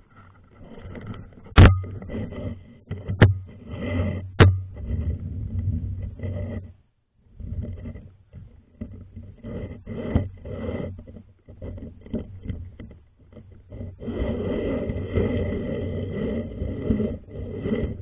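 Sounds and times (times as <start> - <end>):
camera scraping against stone walls: 0.0 - 18.0
knocks and rubs: 0.2 - 6.8.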